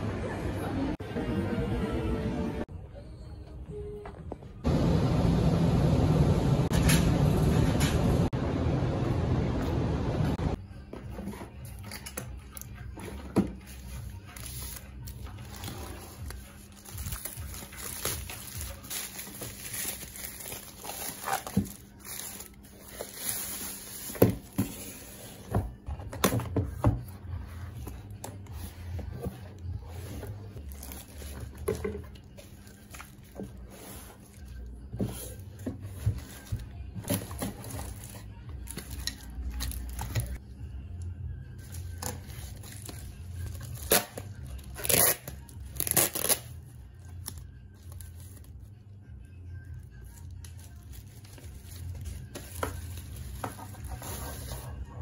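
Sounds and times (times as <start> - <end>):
plastic bag and bubble wrap crinkling: 11.9 - 25.5, 27.9 - 40.4, 41.5 - 48.8, 49.5 - 55.0.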